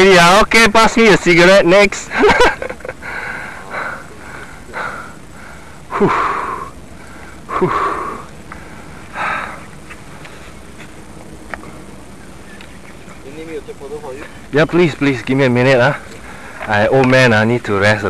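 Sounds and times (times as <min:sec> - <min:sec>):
man breathing hard: 0:03.0 - 0:09.7.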